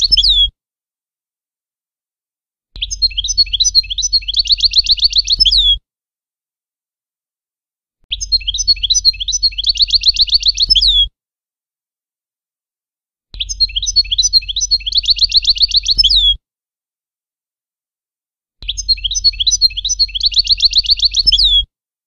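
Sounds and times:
goldfinch twittering song: 2.8 - 5.8, 8.1 - 11.1, 13.4 - 16.4, 18.6 - 21.7.

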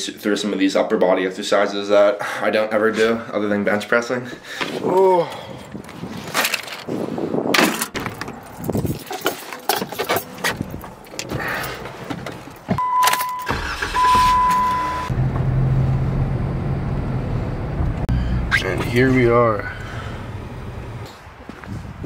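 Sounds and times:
car warning chime: 12.8 - 15.1
car engine running: 13.5 - 21.0.

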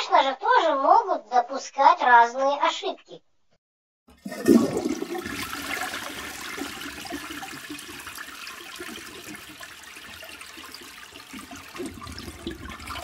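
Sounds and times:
toilet flushing: 4.1 - 13.0.

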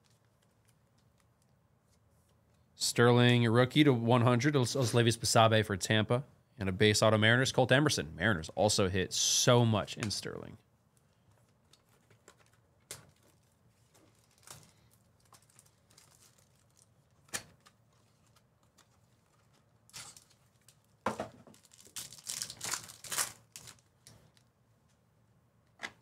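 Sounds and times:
packaging crinkling and rustling: 11.0 - 24.5.

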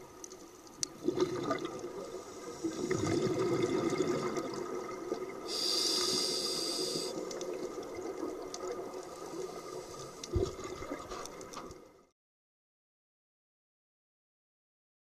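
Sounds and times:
exhaled bubbles: 0.9 - 5.6
high hiss: 5.5 - 7.2
underwater regulator breathing: 5.5 - 7.3.

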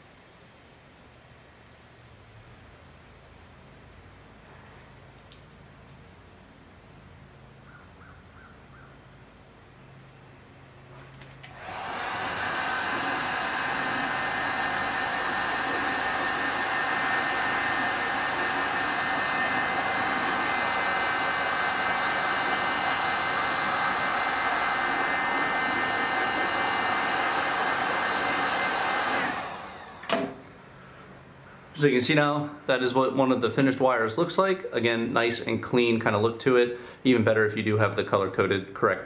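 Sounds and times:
heat gun blowing: 11.2 - 31.0.

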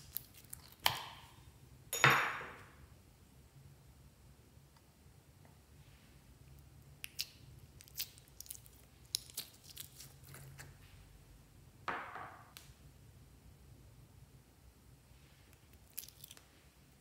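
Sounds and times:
slime crackling and popping: 0.0 - 1.3, 7.0 - 10.4
slime squelch: 0.0 - 1.5, 6.6 - 11.1, 15.2 - 16.9.

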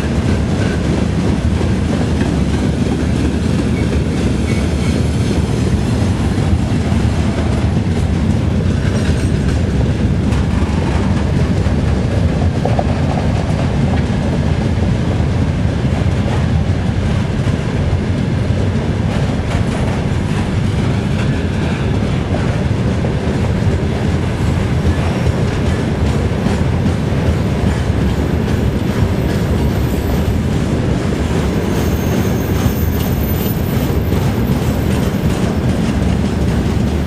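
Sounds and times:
wheels clacking over rail joints: 0.0 - 14.6, 15.7 - 37.0
steel wheels rumbling on rails: 0.0 - 37.0.

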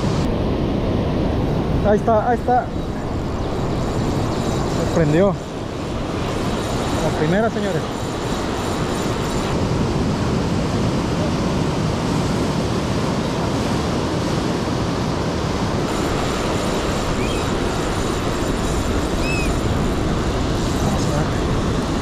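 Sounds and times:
ocean surf rushing: 0.0 - 22.0
faint high chirps: 17.2 - 17.5, 19.2 - 19.6.

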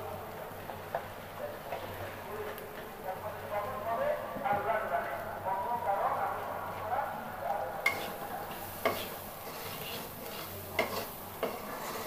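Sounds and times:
spice paste sizzling: 7.8 - 12.0
spatula scraping pan: 7.9 - 12.0.

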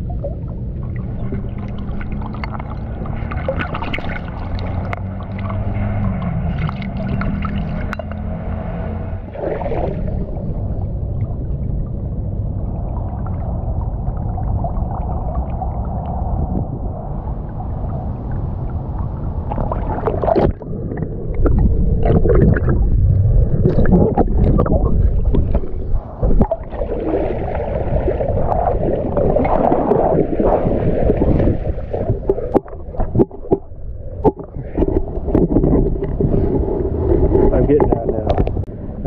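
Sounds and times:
low rumble: 0.0 - 39.0
water sloshing and gurgling: 0.0 - 39.0
small knocks and splashes: 0.9 - 8.7.

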